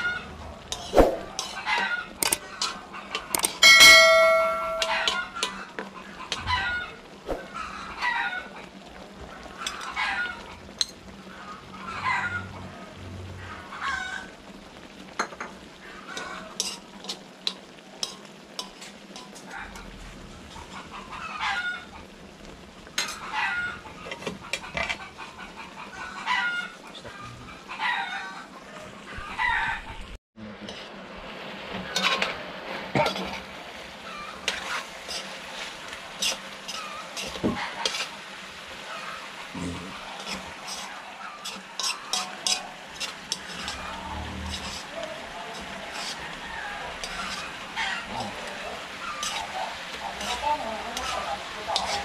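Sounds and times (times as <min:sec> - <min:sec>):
meat sizzling in a wok: 0:00.0 - 0:30.0, 0:30.6 - 0:52.0
metal spoon scraping a wok: 0:00.7 - 0:03.6, 0:16.2 - 0:19.8, 0:31.8 - 0:32.4, 0:34.3 - 0:38.2, 0:40.0 - 0:52.0
chickens clucking: 0:00.9 - 0:03.5, 0:04.1 - 0:10.7, 0:23.1 - 0:30.2, 0:38.8 - 0:52.0.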